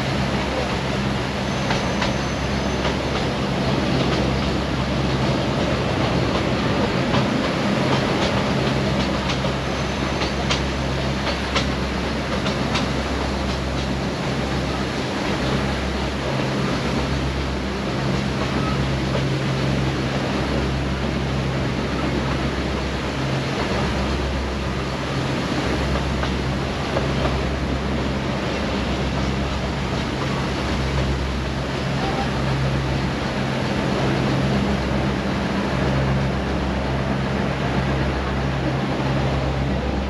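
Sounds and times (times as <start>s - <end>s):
train rumble and rattle: 0.0s - 40.0s.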